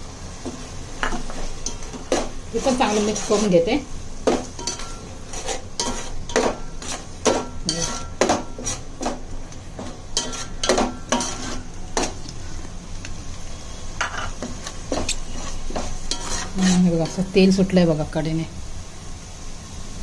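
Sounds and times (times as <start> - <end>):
paste sizzling in oil: 0.0 - 20.0
spoon clinking against pot: 4.6 - 5.1.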